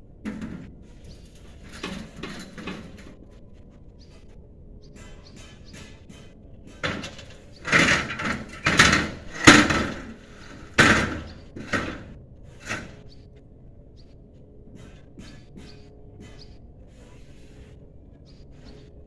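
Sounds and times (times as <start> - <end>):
trays knocking against metal ladder: 5.4 - 12.9.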